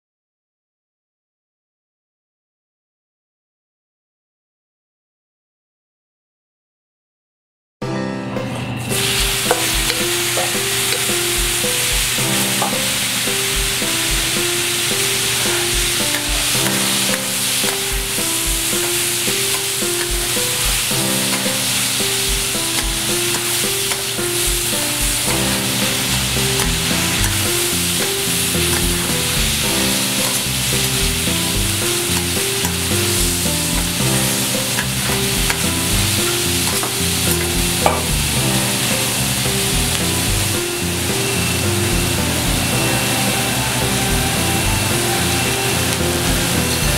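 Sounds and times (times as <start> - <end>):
soft background music: 7.9 - 46.9
metal spatulas scraping: 8.9 - 11.9, 14.6 - 38.1
food sizzling on a griddle: 8.9 - 46.9.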